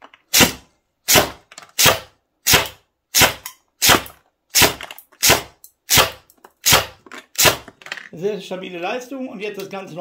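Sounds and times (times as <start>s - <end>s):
airsoft gun shots: 0.3s - 7.7s.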